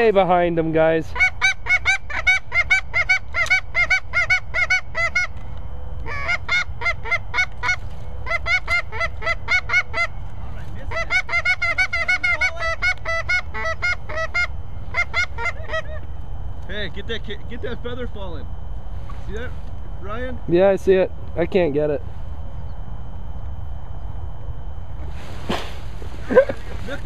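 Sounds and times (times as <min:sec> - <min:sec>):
low wind rumble: 0:00.0 - 0:27.0
goose honking: 0:01.1 - 0:05.4, 0:06.0 - 0:16.1.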